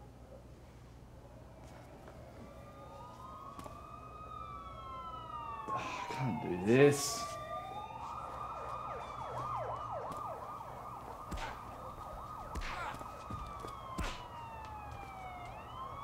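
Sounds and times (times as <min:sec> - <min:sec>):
police siren: 0:00.0 - 0:16.0
dull thuds: 0:09.5 - 0:15.6.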